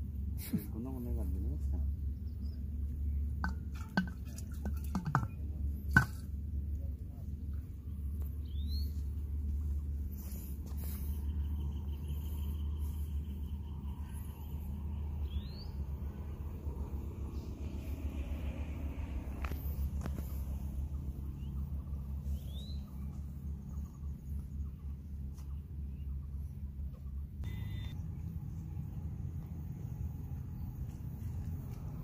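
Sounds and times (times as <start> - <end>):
steady low rumble: 0.0 - 32.0
rising bird chirps: 10.2 - 16.4, 20.8 - 24.7.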